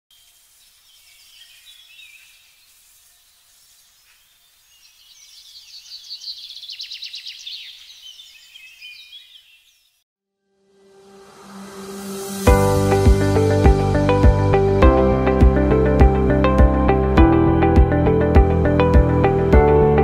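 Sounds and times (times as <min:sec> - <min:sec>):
birds chirping and singing: 0:00.2 - 0:10.0.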